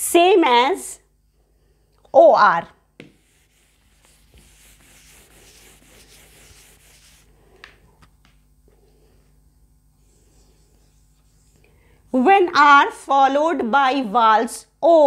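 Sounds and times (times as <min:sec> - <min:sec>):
eraser rubbing on whiteboard: 0:03.0 - 0:07.4, 0:10.0 - 0:11.6.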